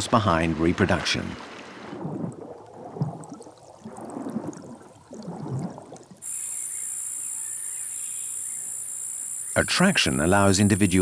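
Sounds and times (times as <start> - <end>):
underwater water wash: 0.0 - 7.6
high-pitched insect trill: 6.2 - 11.0.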